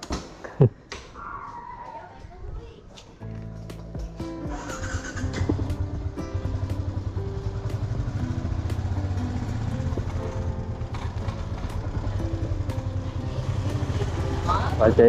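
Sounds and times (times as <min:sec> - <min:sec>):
background music with beat: 0:03.2 - 0:10.6
motorbike engine rumble: 0:04.0 - 0:15.0.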